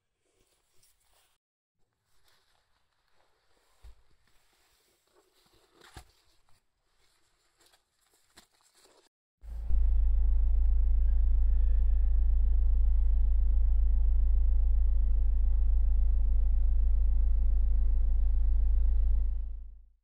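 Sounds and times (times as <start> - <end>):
car interior rumble: 9.5 - 19.8.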